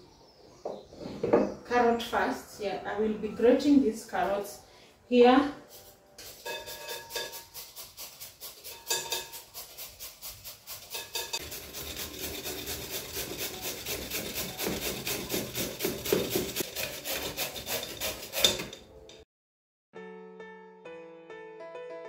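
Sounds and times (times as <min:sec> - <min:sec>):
carrots rasping on metal grater: 0:06.2 - 0:18.8.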